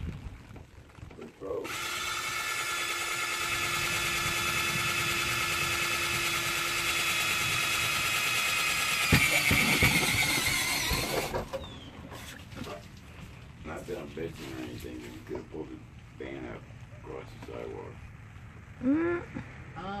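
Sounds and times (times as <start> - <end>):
cordless drill drilling metal: 1.6 - 11.8.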